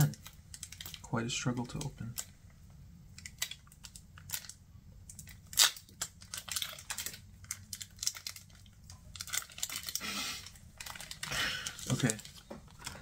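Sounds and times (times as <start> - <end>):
foil wrapper tearing: 3.2 - 4.6, 5.2 - 13.0.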